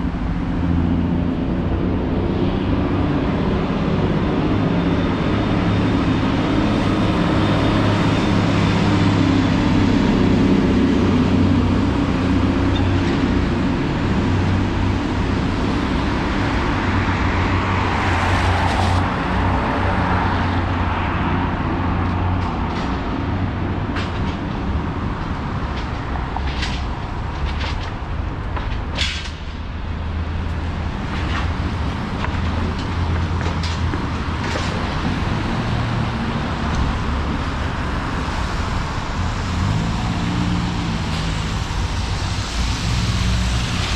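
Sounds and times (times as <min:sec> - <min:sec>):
tyres hissing on wet road: 0:06.2 - 0:20.6, 0:34.8 - 0:43.9.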